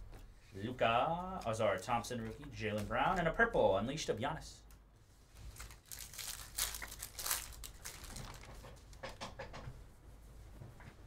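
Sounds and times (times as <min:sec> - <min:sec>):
foil wrapper crinkling and tearing: 0:05.4 - 0:08.8.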